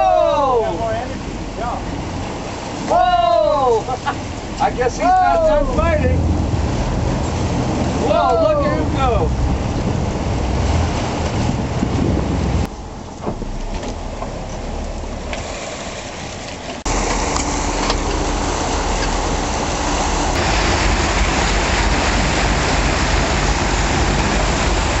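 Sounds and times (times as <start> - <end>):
water rushing: 0.0 - 25.0
boat engine running: 3.8 - 25.0
wind on microphone: 4.3 - 14.4.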